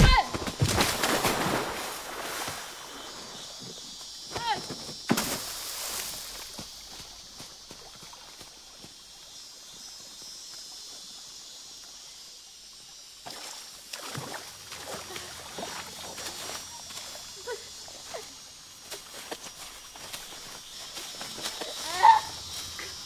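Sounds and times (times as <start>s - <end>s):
insect hiss: 0.0s - 23.0s
crawling through wet leaves and mud: 14.0s - 23.0s.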